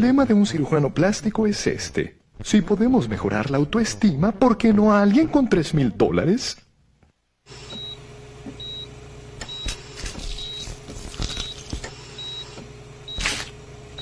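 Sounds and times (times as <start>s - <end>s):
low machine hum: 0.0s - 6.7s, 7.4s - 14.0s
heart monitor beeping: 7.6s - 13.4s.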